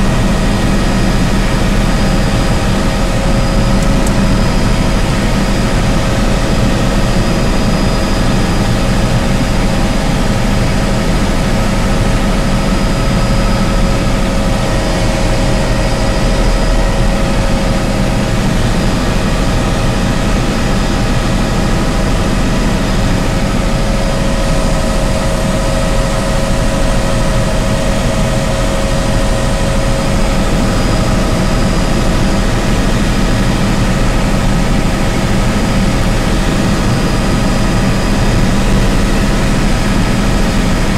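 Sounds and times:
constant whining tones: 0.0s - 40.9s
helicopter engine and rotor drone: 0.0s - 40.9s.

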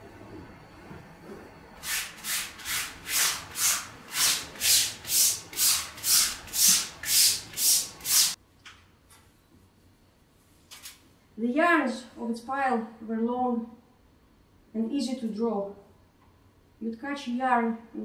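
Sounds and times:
cloth scrubbing concrete floor: 1.8s - 8.4s.

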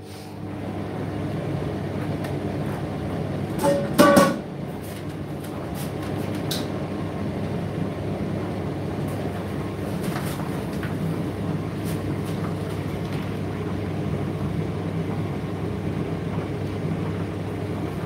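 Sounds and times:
tumble dryer drum rumbling: 0.0s - 18.0s
dryer clank: 3.5s - 4.5s.

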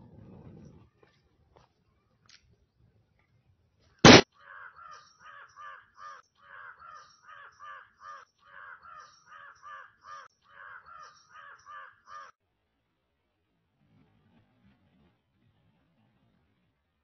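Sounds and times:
crows cawing: 4.1s - 12.3s.

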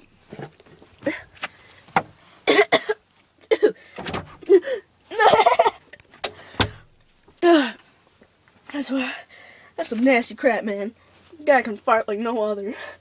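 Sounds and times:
man laughing: 4.5s - 6.0s.

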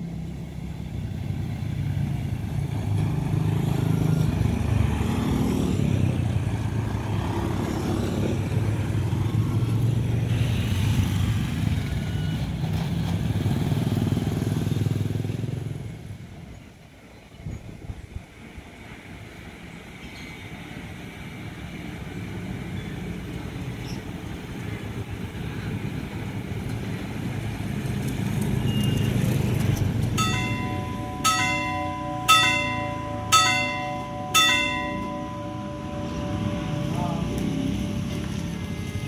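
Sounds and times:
level crossing bell ringing: 30.2s - 39.0s
steady alarm tone: 30.2s - 39.0s.

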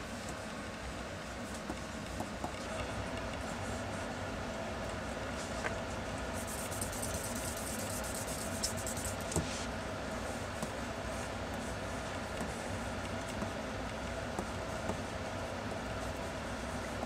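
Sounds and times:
pencil scratching on paper: 6.4s - 9.4s.

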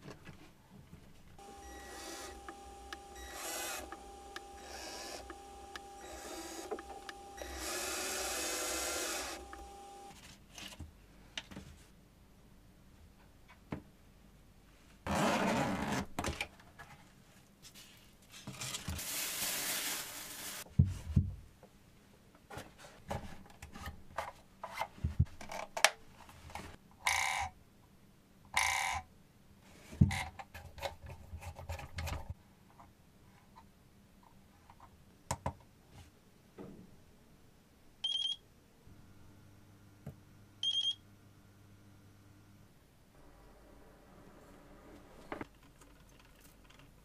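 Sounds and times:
short buzzes: 1.4s - 10.2s.

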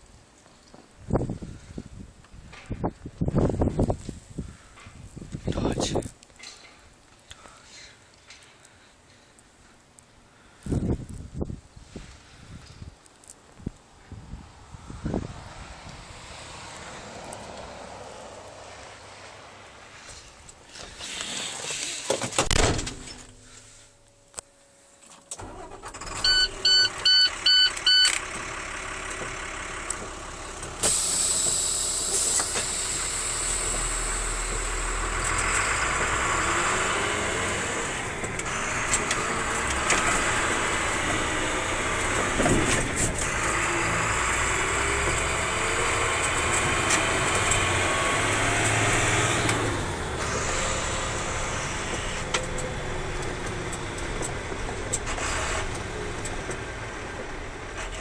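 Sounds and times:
car running noise inside cabin: 25.4s - 58.0s
car warning chime beeps: 25.5s - 28.2s.

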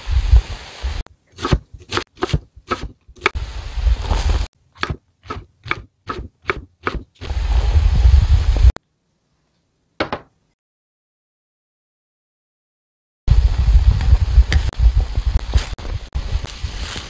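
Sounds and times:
knife chopping on wooden board: 4.8s - 7.1s.

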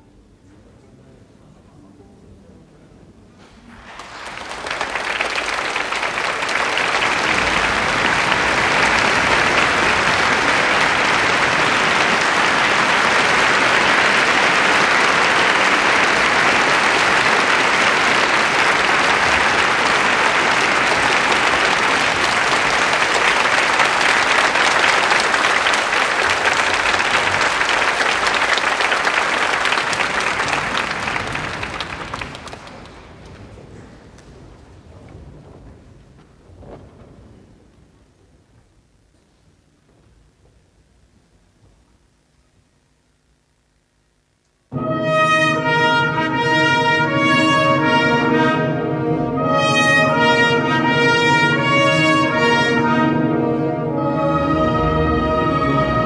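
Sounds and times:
audience applauding: 3.7s - 37.6s.

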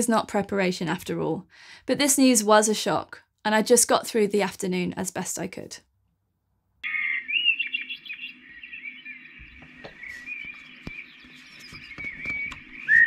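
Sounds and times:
recorded birdsong alarm: 6.8s - 13.0s.

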